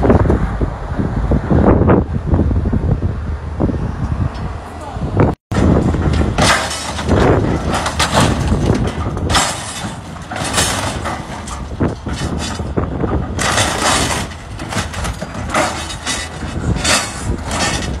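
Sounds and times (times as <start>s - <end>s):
excavator engine rumble: 0.0s - 18.0s
metal crunching and banging: 5.5s - 18.0s.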